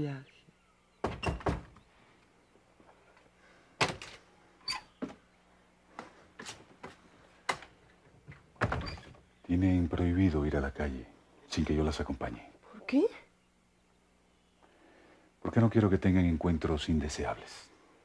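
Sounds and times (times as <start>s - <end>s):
door opening: 7.5s - 9.2s.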